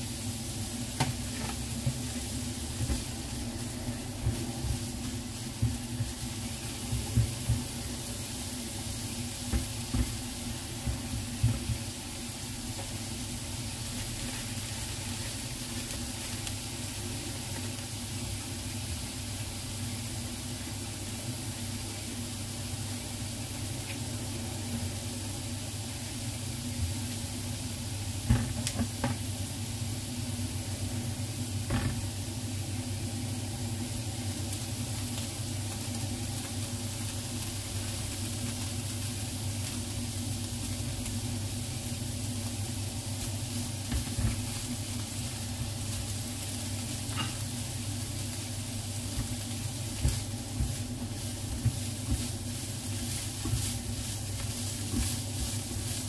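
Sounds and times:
meat sizzling in a frying pan: 0:00.0 - 0:56.0.

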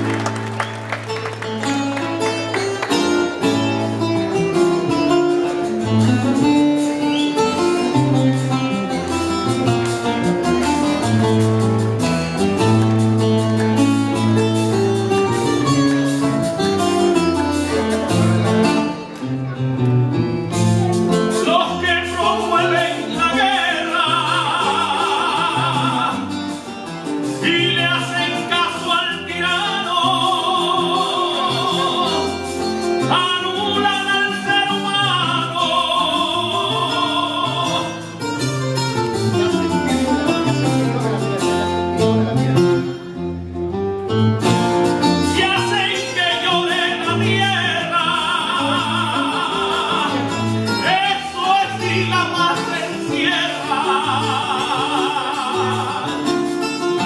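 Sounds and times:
plucked strummed lute: 0:00.0 - 0:57.0
man singing with vibrato: 0:21.1 - 0:38.8, 0:45.0 - 0:57.0.

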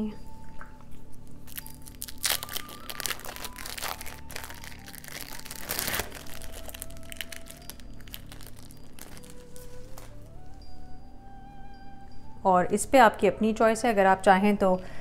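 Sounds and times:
plastic wrapper crinkling: 0:01.2 - 0:10.6.

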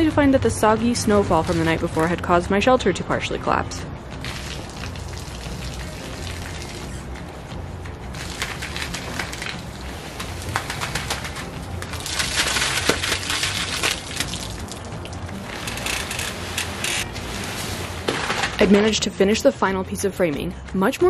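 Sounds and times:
plastic tarp rustling and crackling: 0:08.1 - 0:19.1.

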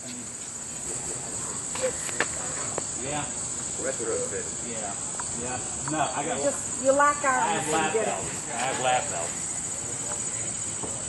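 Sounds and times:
faint voices: 0:00.0 - 0:11.0
insect chorus: 0:00.0 - 0:11.0.

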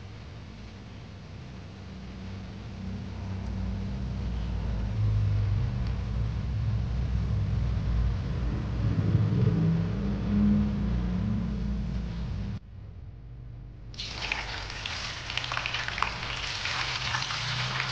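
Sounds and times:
steady low rumble: 0:02.4 - 0:14.0
food sizzling in hot oil: 0:14.0 - 0:17.9.

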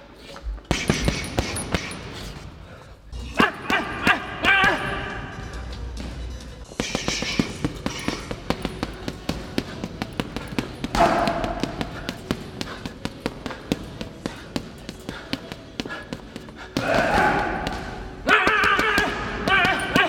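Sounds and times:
gloves punching heavy bag: 0:00.6 - 0:02.5, 0:03.3 - 0:20.0
person grunting: 0:16.8 - 0:20.0.

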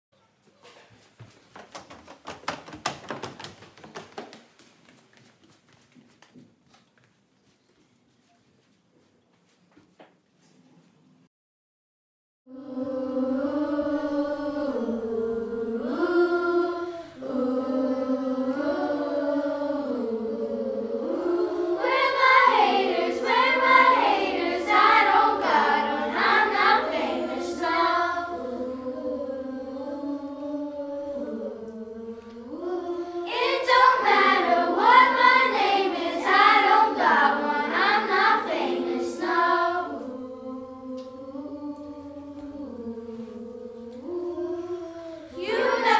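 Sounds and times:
children singing a cappella: 0:12.5 - 0:45.9.

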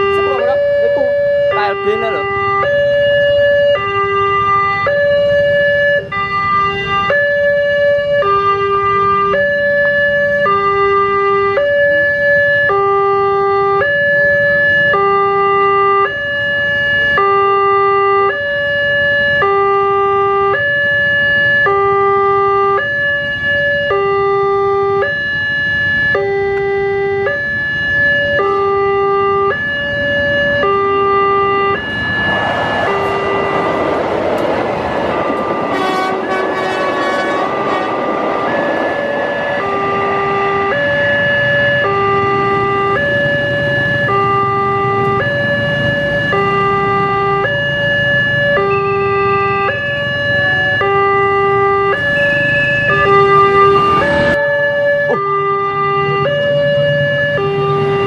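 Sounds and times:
level crossing two-tone alarm: 0:00.0 - 0:34.0, 0:34.9 - 0:58.0
train rumble: 0:31.8 - 0:47.2.

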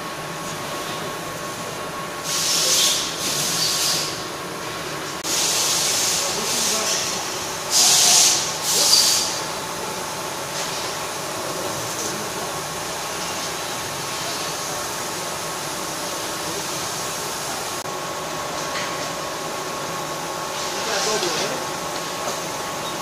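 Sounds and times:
laser cutter machine hum: 0:00.0 - 0:23.0
laser cutter loud hisses: 0:01.6 - 0:04.4, 0:05.2 - 0:17.8, 0:20.0 - 0:22.5.

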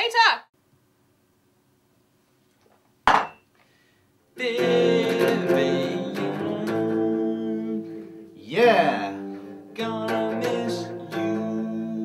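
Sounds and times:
sharp knock: 0:03.1 - 0:03.4
electric guitar strumming chords: 0:04.4 - 0:12.0.

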